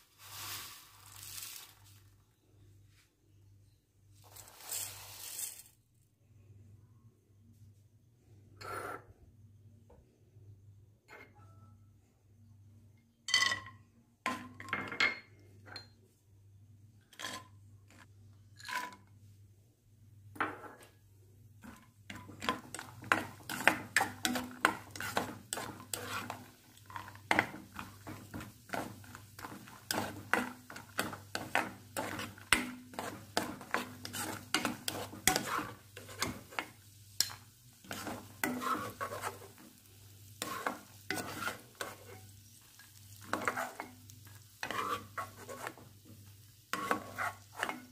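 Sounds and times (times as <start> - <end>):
light frying sizzle: 0.0 - 2.4, 4.1 - 5.8, 20.8 - 47.9
spatula scraping and knocking pan: 21.6 - 39.8, 40.4 - 47.9.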